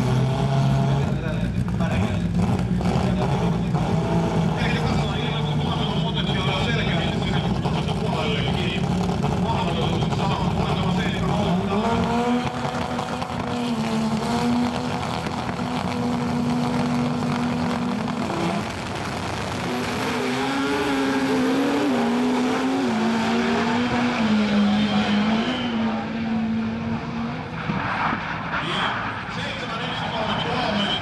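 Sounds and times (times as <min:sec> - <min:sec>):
drag racing car engines: 0:00.0 - 0:31.0.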